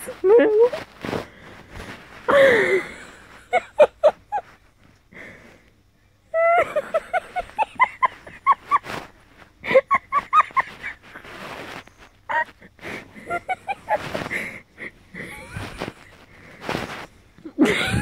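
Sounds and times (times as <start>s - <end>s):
woman giggling: 2.3s - 4.6s, 6.3s - 11.2s, 12.3s - 16.2s, 17.4s - 18.0s.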